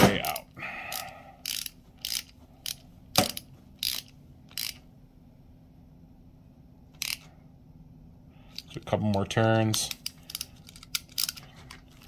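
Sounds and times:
hand ratchet clicking: 0.3s - 4.8s, 7.0s - 7.3s, 8.5s - 11.5s.

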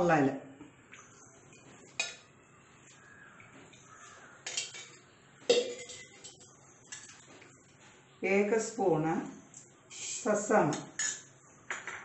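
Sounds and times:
spoons clinking against steel bowls: 1.5s - 2.3s, 3.7s - 7.2s, 11.0s - 12.0s.

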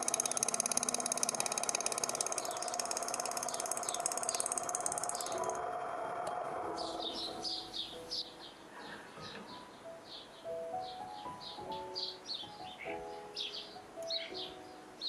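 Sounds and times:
lathe whirring pulse: 0.0s - 7.7s
lathe humming: 0.0s - 7.8s.

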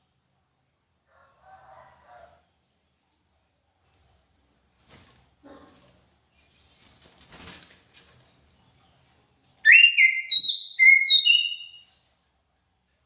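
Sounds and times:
bird whistling notes: 9.7s - 11.8s.

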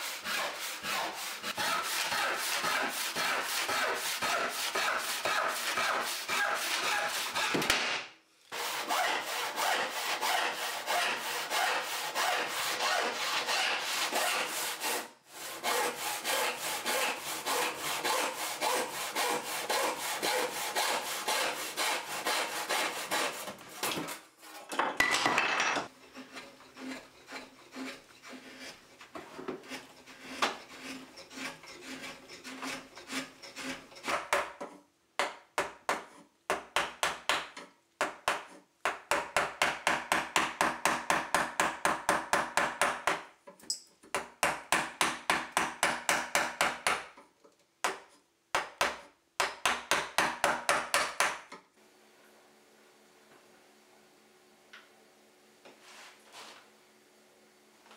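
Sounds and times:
chisel scraping wood: 0.0s - 7.6s, 8.5s - 24.8s, 25.8s - 34.8s
handsaw cutting wood: 0.0s - 7.8s, 8.5s - 24.7s, 25.9s - 34.7s.

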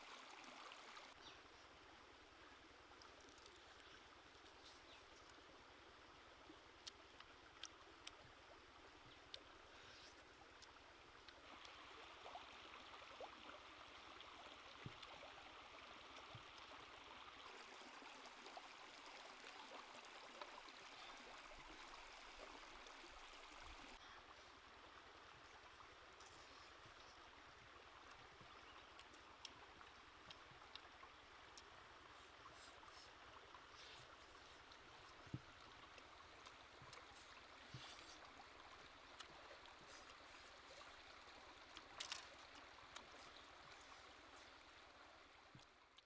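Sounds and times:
stream trickling: 0.0s - 46.0s
small clicks: 41.8s - 43.2s.

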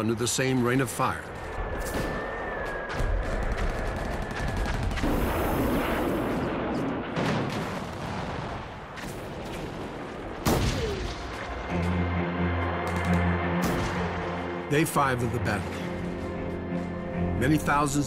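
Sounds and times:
explosions: 3.1s - 11.6s.

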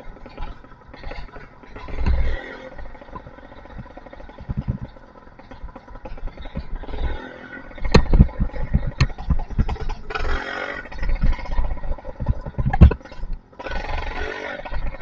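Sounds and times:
two-stroke engine revving: 0.0s - 15.0s
sharp knocks: 7.8s - 10.0s.

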